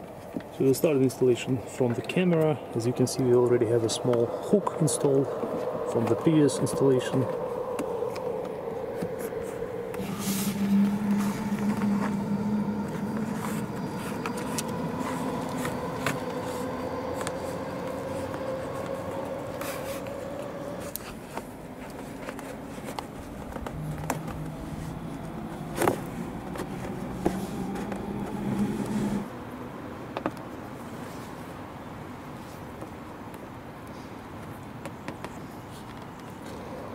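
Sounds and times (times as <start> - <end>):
steady low hum: 0.0 - 21.8, 22.6 - 29.6.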